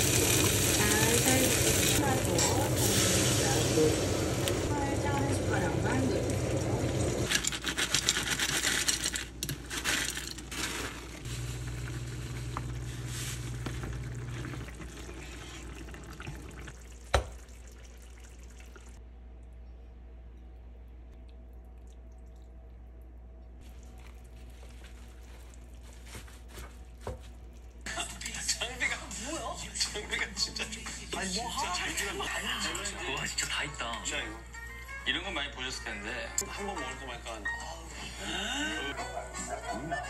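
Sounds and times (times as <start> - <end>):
faint kitchen sounds: 0.0 - 40.0
wooden spoons stirring: 7.2 - 16.1, 23.6 - 34.3
sauce simmering in a pan: 11.3 - 19.0
low hum: 18.9 - 25.8.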